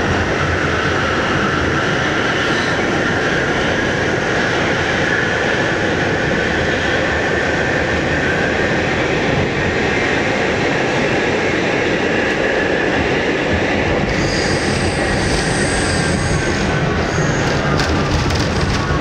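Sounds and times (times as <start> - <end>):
subway wheels rumbling on rails: 0.0 - 19.0
high-pitched squeal: 14.1 - 19.0.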